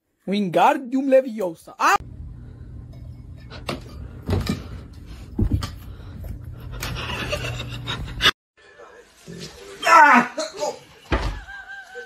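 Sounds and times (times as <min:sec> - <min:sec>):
steady low hum: 0:02.0 - 0:08.3.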